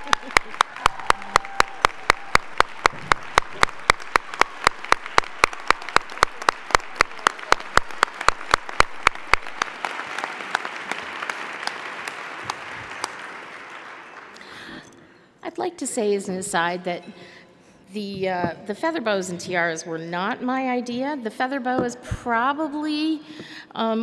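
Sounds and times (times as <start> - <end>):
hands clapping near microphone: 0.0 - 14.6
audience applause: 0.0 - 14.7.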